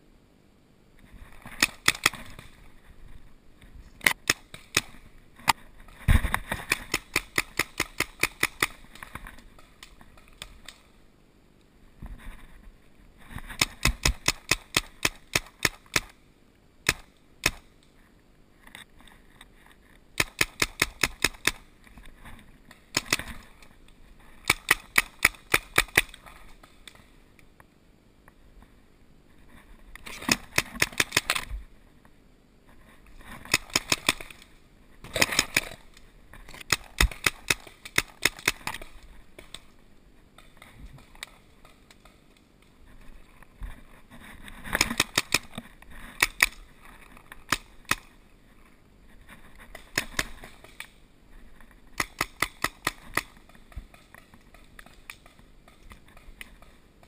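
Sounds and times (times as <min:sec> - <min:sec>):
paintball markers firing: 0:01.6 - 0:02.5, 0:04.0 - 0:05.0, 0:06.6 - 0:09.0, 0:13.6 - 0:16.2, 0:16.8 - 0:17.7, 0:20.2 - 0:21.7, 0:24.4 - 0:26.2, 0:30.1 - 0:31.5, 0:33.5 - 0:34.4, 0:35.1 - 0:35.9, 0:36.6 - 0:39.6, 0:44.8 - 0:45.6, 0:49.8 - 0:50.8, 0:52.0 - 0:56.7.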